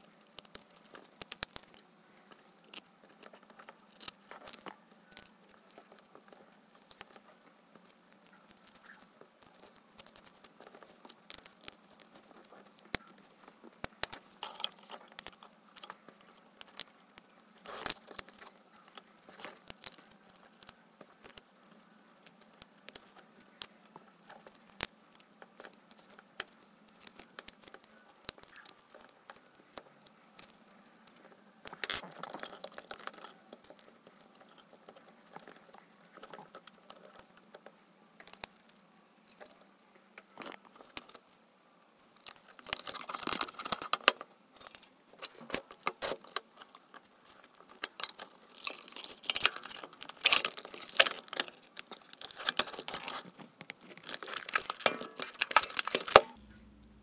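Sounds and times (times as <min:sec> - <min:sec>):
plastic and metal rustling: 0:00.0 - 0:41.4, 0:42.0 - 0:57.0.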